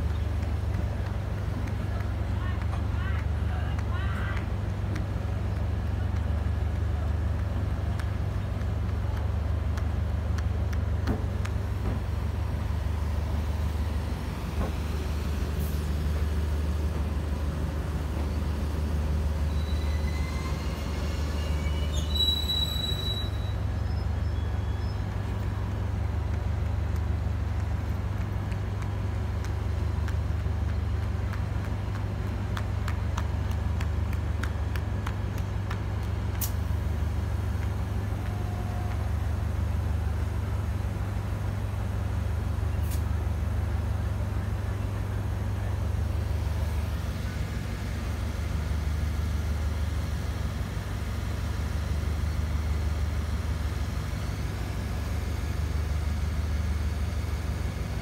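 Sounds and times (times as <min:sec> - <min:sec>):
diesel train engine drone: 0:00.0 - 0:58.0
brief shrill tone: 0:21.4 - 0:23.6.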